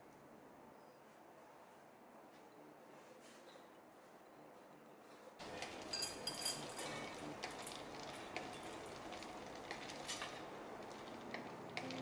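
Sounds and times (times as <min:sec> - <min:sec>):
wax pellets clicking on metal: 0:07.4 - 0:12.0.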